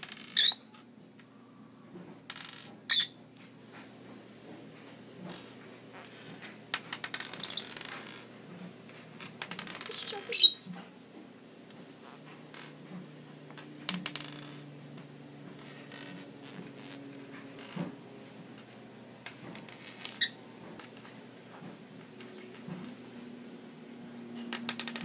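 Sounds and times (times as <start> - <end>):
bird squawk: 9.9 - 10.7.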